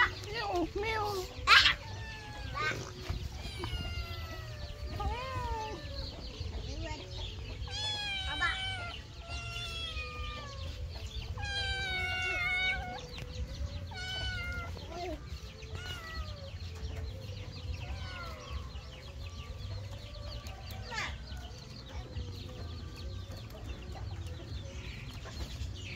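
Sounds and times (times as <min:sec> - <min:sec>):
kitten meowing: 0:01.7 - 0:06.1, 0:07.7 - 0:10.8, 0:11.4 - 0:13.2, 0:13.9 - 0:14.9, 0:15.7 - 0:16.4.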